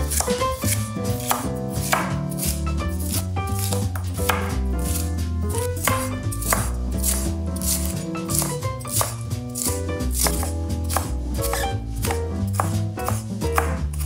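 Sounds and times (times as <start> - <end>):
background music with bass: 0.0 - 14.0
knife chopping on wooden board: 0.0 - 14.0.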